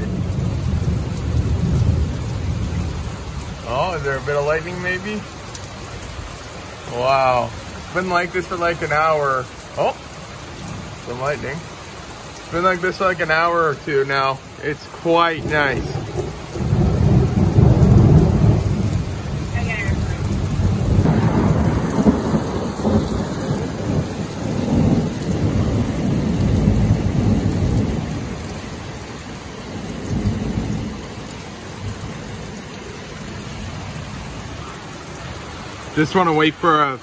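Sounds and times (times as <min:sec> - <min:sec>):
rolling thunder: 0:00.0 - 0:05.0, 0:15.3 - 0:28.9, 0:29.6 - 0:32.6
heavy rain hissing: 0:00.0 - 0:37.0.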